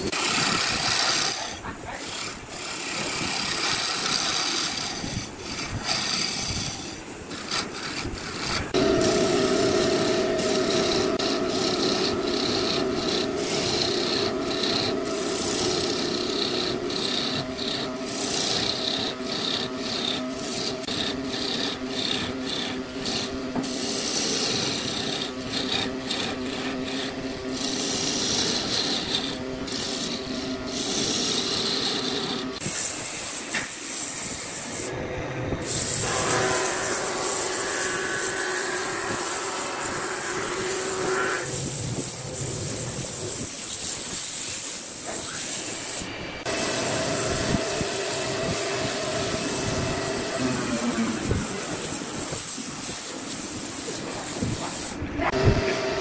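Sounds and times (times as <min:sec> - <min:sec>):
lathe tool cutting wood: 0:00.0 - 0:35.0, 0:35.6 - 0:45.5, 0:46.4 - 0:56.0.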